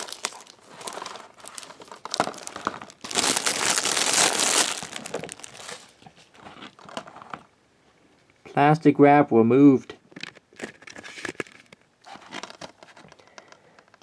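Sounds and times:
plastic wrap crackling and crinkling: 0.0s - 7.5s, 10.2s - 13.6s.

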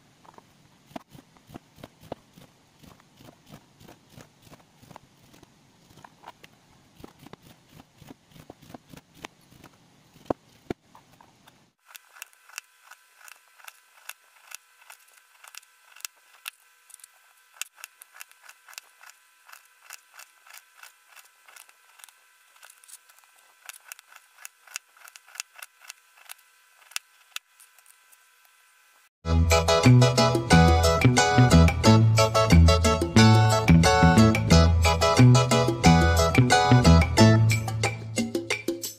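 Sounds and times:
faint steady hum: 0.0s - 29.1s.

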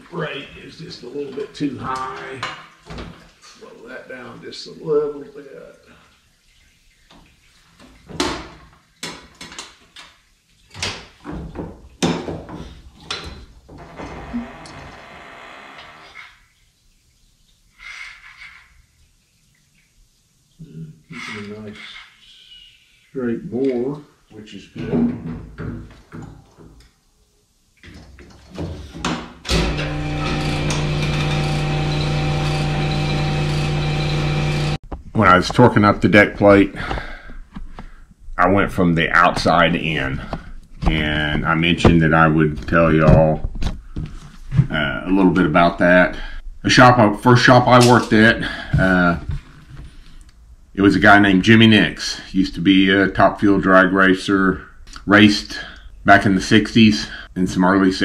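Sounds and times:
honing machine humming: 29.5s - 34.8s.

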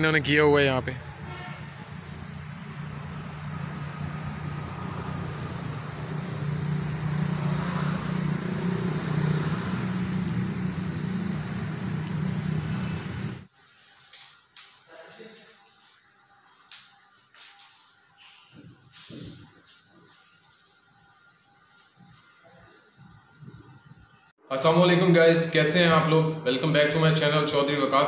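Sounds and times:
generator humming: 0.0s - 13.5s.

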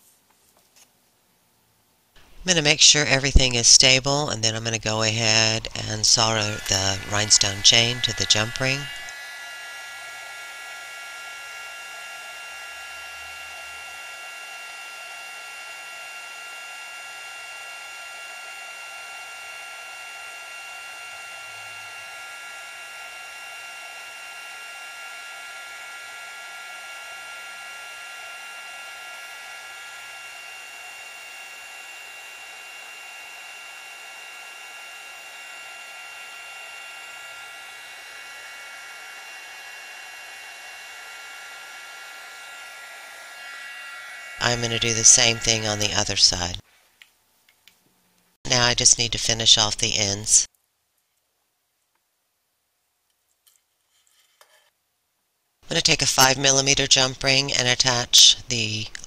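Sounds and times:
heat gun blowing: 2.2s - 46.7s.

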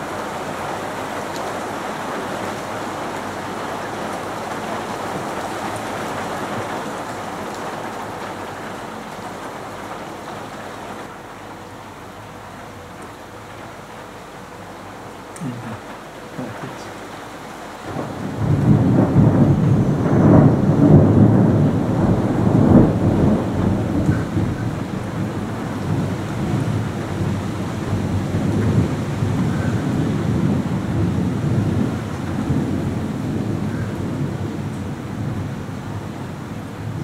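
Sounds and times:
rain falling: 0.0s - 37.0s
thunder rolling: 17.8s - 37.0s.

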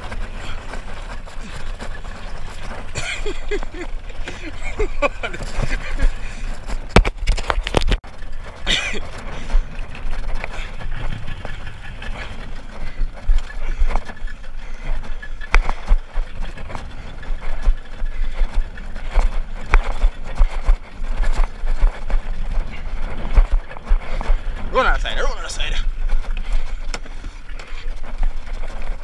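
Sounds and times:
wind buffeting microphone: 0.0s - 29.0s
outboard motor: 8.0s - 29.0s.

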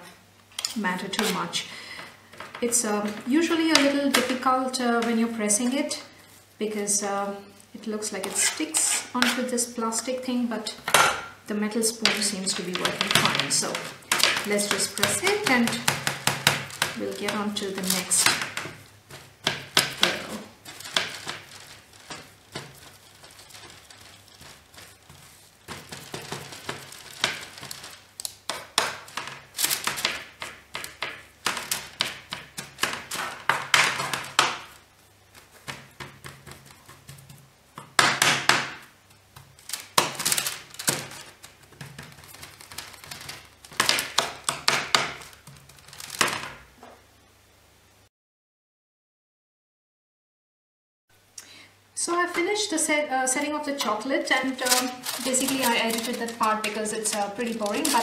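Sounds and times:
baking paper crinkling: 0.6s - 6.6s, 7.2s - 46.8s, 52.1s - 58.0s
metal spoon scraping mixture: 8.0s - 9.7s, 12.0s - 30.9s, 53.8s - 58.0s.

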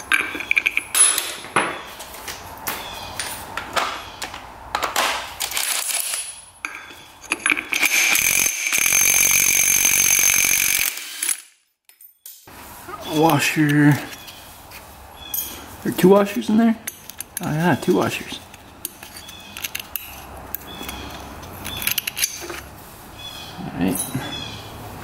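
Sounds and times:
metal parts and tools clinking: 0.0s - 1.9s, 4.7s - 14.4s, 16.2s - 22.7s, 23.8s - 24.4s.

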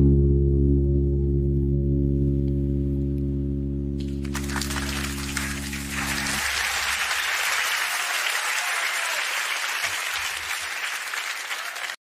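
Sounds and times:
audience applause: 4.0s - 12.0s.

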